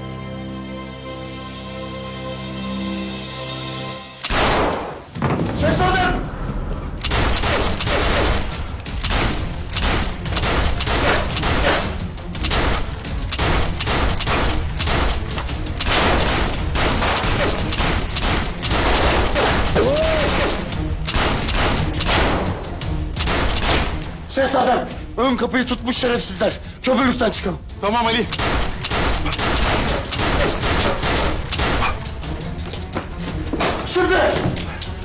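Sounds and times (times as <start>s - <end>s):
dramatic music: 0.0s - 35.0s
rapid handgun shots: 7.0s - 19.7s, 21.0s - 22.5s, 23.2s - 24.0s, 28.3s - 32.0s.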